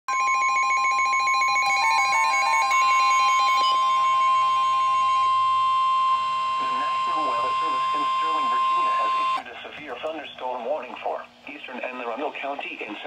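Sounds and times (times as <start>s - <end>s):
rapid electronic alarm beeps: 0.1s - 9.4s
steady alarm tone: 0.1s - 9.4s.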